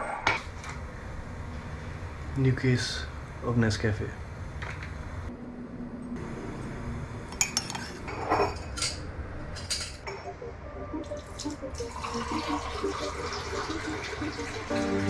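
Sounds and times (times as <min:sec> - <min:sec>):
cup and spoon clinking: 0:07.4 - 0:09.0
liquid pouring: 0:11.2 - 0:15.0.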